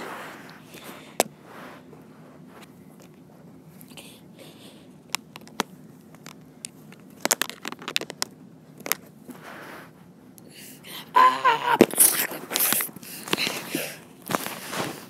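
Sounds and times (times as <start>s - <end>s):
high-pitched voice cry: 10.9s - 12.4s.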